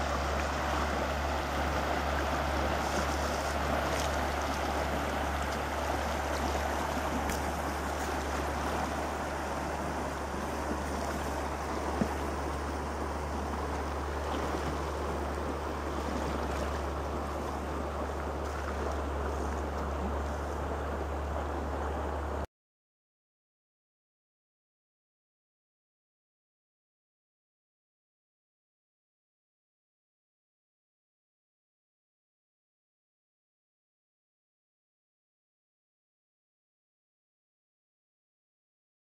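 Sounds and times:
river rushing over gravel: 0:00.0 - 0:22.4.

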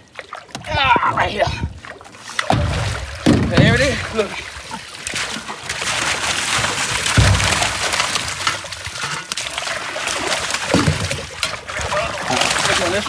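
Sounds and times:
water pouring and splashing: 0:00.0 - 0:13.0
heavy thud: 0:02.5 - 0:04.0, 0:07.2 - 0:07.9.

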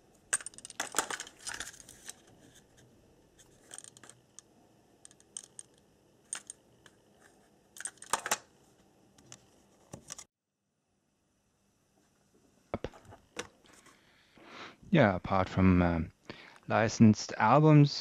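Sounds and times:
plastic cassette clatter: 0:00.3 - 0:02.3
plastic cassette clicks and rattles: 0:00.3 - 0:02.3, 0:07.8 - 0:08.5.

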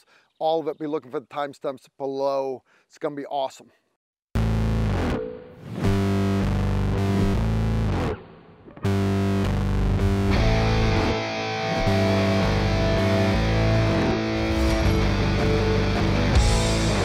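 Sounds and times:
rock music with distorted guitar: 0:04.4 - 0:17.0.

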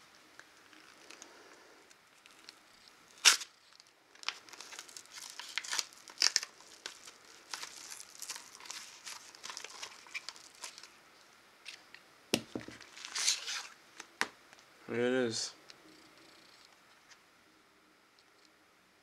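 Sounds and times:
paper and plastic crinkling: 0:02.1 - 0:11.0, 0:12.7 - 0:14.1
envelope ripping: 0:02.2 - 0:11.0, 0:12.8 - 0:13.8.

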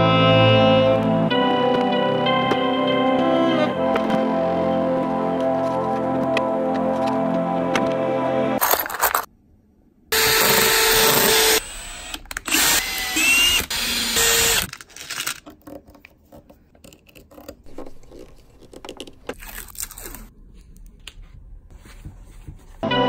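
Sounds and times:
power drill drilling into plastic: 0:10.2 - 0:15.3
small screws clicking and rattling: 0:10.5 - 0:16.0.

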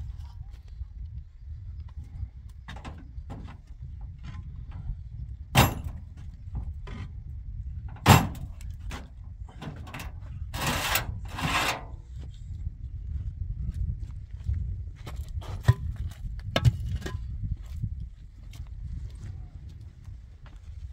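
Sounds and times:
blocks scraping: 0:10.5 - 0:12.0.

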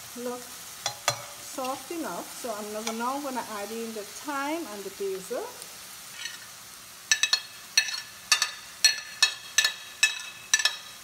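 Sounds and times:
dish clinking on steel pan: 0:07.1 - 0:10.9.

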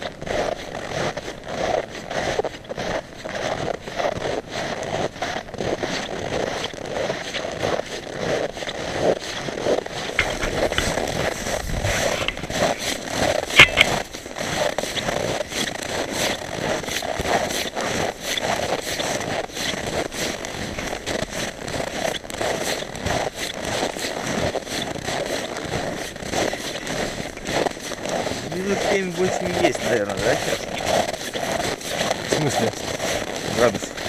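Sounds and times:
footsteps crunching in snow: 0:00.0 - 0:34.0
sharp click: 0:13.5 - 0:14.0.

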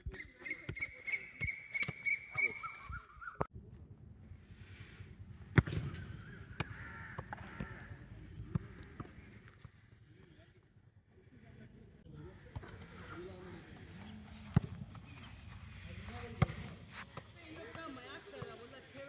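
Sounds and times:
football kick thud: 0:05.5 - 0:06.0.

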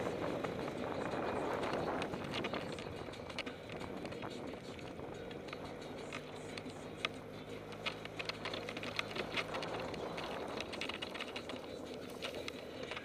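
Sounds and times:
golf cart engine running: 0:00.0 - 0:13.0
clicks and rattles: 0:05.5 - 0:13.0.

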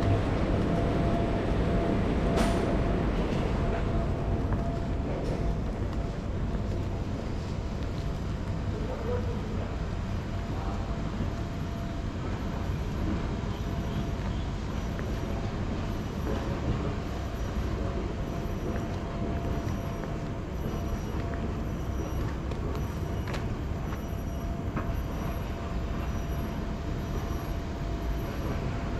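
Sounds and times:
low outdoor rumble: 0:00.0 - 0:28.9.

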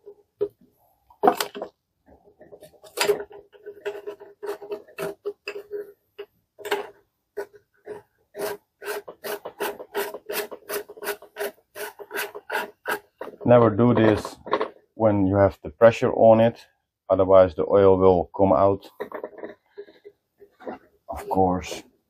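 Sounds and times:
plastic threads scraping: 0:00.0 - 0:14.7.

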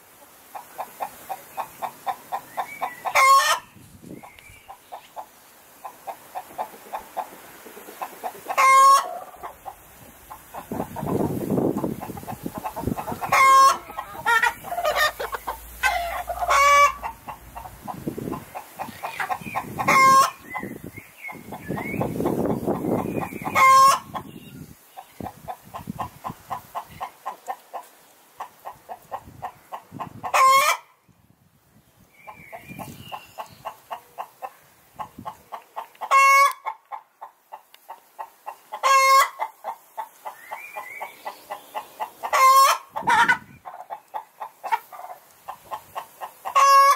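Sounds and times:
chickens clucking: 0:00.0 - 0:30.9, 0:32.2 - 0:46.9
chicken squawk: 0:00.8 - 0:03.7, 0:06.6 - 0:20.4, 0:22.3 - 0:24.3, 0:30.2 - 0:30.9, 0:36.0 - 0:36.8, 0:38.7 - 0:40.4, 0:41.5 - 0:46.9.

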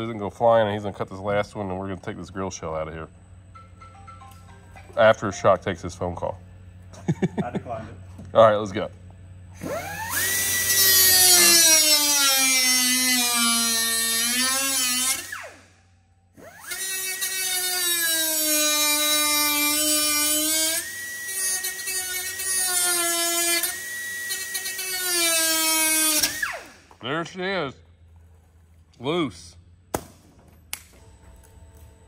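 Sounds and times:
pneumatic tool whining: 0:09.5 - 0:27.0.

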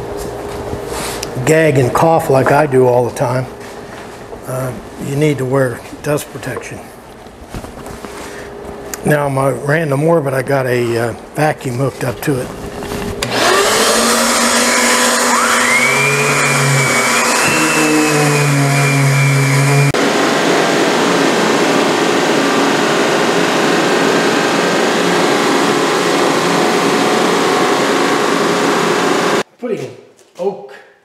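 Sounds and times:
steady machine noise: 0:12.4 - 0:29.4
orbit sander whining: 0:13.1 - 0:29.4.

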